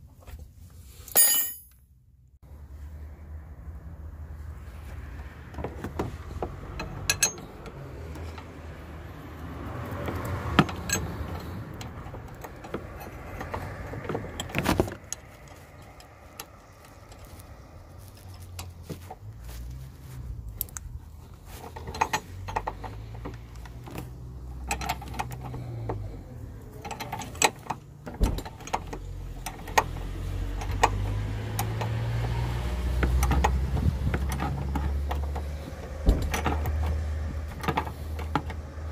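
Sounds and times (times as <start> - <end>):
spanner clicking on metal nut: 6.8 - 8.6, 10.0 - 13.7.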